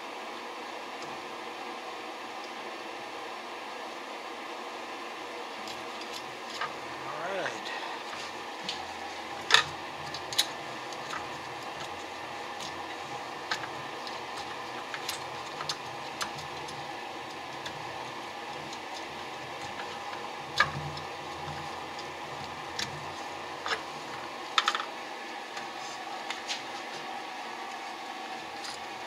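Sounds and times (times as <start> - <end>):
steady background hum: 0.0 - 29.0
metal parts clicking and tapping: 9.4 - 12.0.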